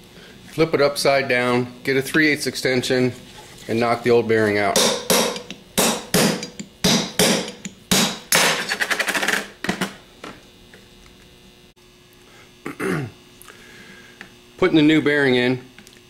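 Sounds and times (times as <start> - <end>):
hammer striking metal: 4.7 - 8.6.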